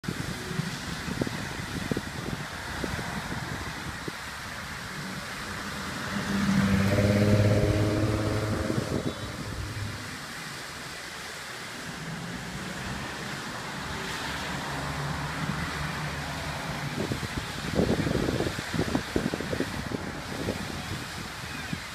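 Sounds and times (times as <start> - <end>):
wind buffeting microphone: 0.0 - 10.6, 16.8 - 21.9
steady hiss: 0.0 - 21.9
cars passing: 1.9 - 21.8.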